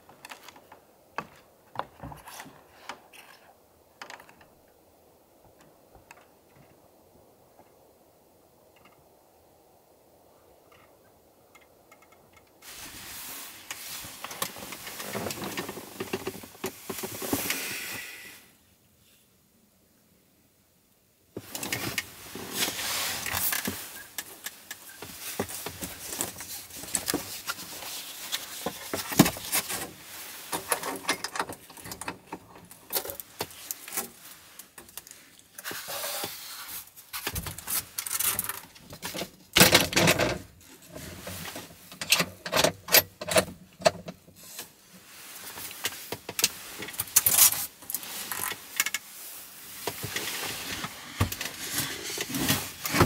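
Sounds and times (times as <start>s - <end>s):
rustling: 12.6s - 18.6s, 21.4s - 42.4s, 43.0s - 53.0s.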